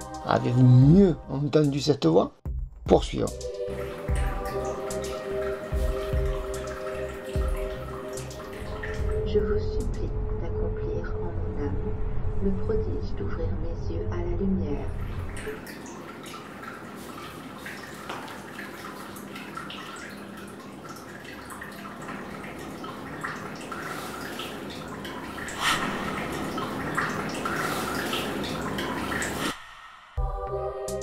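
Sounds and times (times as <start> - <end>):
water drips: 3.2 - 9.6, 14.8 - 29.7
running water splashing: 3.7 - 9.3, 14.8 - 29.7.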